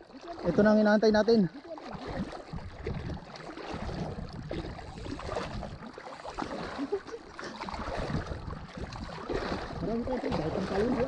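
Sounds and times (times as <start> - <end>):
sea water sloshing and lapping: 0.0 - 11.0
wind buffeting microphone: 1.9 - 6.9, 7.6 - 11.0.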